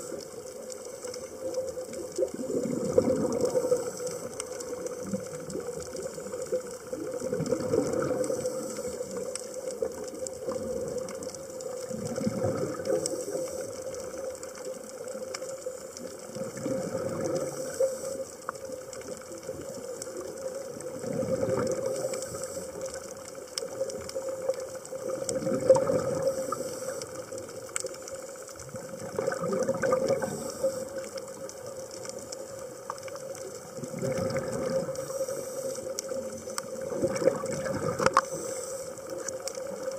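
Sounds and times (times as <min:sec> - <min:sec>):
underwater hiss: 0:00.0 - 0:39.9
exhaled bubbles rushing: 0:01.0 - 0:13.5, 0:16.0 - 0:17.8, 0:19.0 - 0:22.2, 0:23.6 - 0:27.7, 0:28.6 - 0:35.2, 0:35.8 - 0:38.3.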